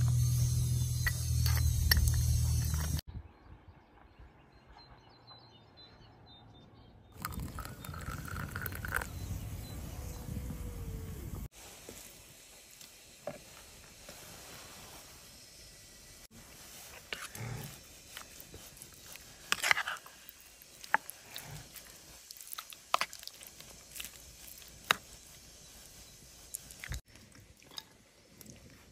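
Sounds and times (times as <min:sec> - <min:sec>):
steady low hum: 0:00.0 - 0:03.0, 0:07.2 - 0:22.2
water pouring into jug: 0:07.2 - 0:09.1.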